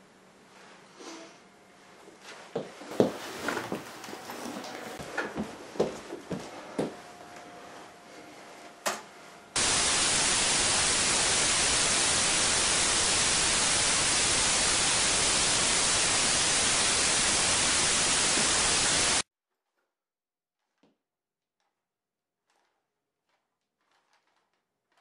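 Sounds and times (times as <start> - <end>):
loud white-noise static: 9.6 - 19.2.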